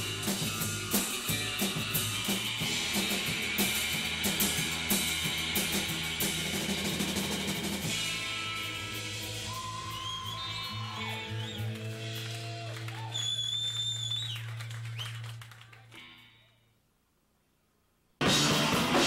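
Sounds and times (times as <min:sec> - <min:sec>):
drum kit beat: 0:00.0 - 0:13.0, 0:18.2 - 0:19.0
music: 0:00.0 - 0:16.7, 0:18.2 - 0:19.0.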